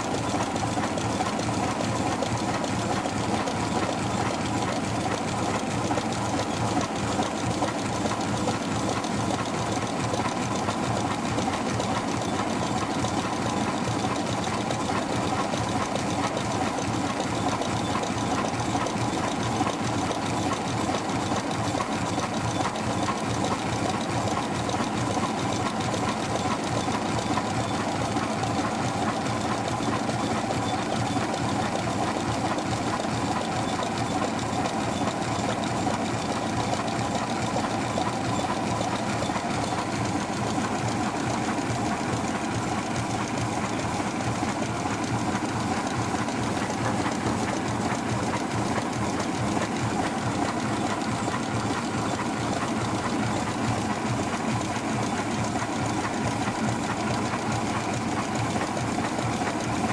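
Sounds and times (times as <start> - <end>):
machine mechanical clatter: 0.0 - 59.9.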